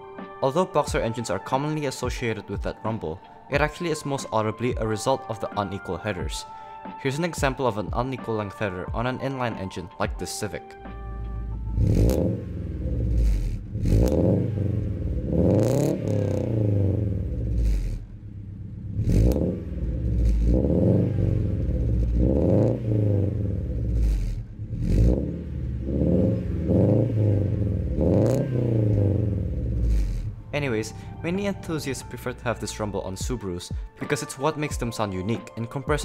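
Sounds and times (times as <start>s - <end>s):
car engine revving: 11.1s - 31.6s.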